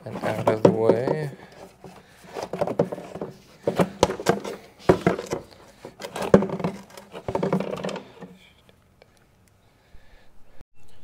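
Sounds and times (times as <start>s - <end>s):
hard plastic knocks and scrapes: 0.0s - 8.4s.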